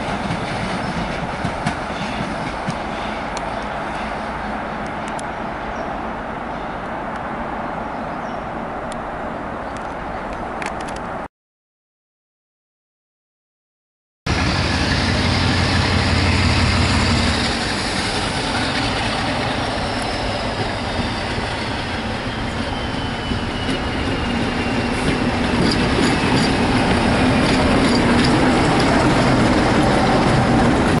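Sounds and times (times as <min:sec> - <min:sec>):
diesel locomotive passing: 0:00.0 - 0:11.0, 0:14.3 - 0:31.0.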